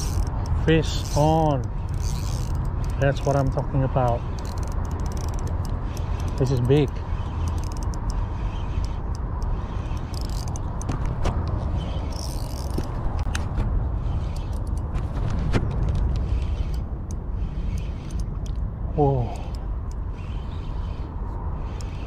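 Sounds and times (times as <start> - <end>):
fishing reel clicking: 0.0 - 13.3, 14.0 - 14.9, 16.2 - 22.0
steady low rumble: 0.0 - 22.0.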